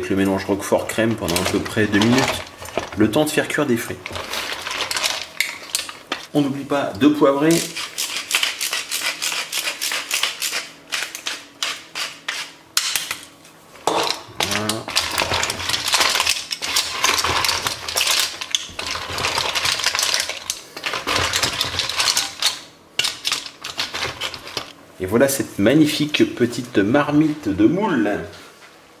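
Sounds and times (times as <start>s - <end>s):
mussel shells clattering in pot: 0.1s - 6.4s, 13.8s - 24.8s
pepper mill grinding: 0.9s - 6.4s, 7.4s - 13.2s, 14.4s - 24.8s.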